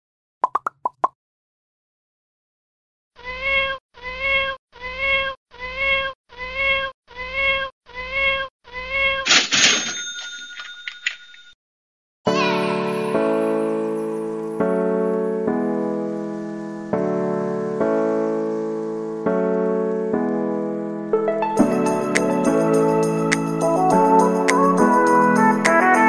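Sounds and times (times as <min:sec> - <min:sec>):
cat meow: 0:03.2 - 0:09.3
piano music: 0:12.3 - 0:26.0.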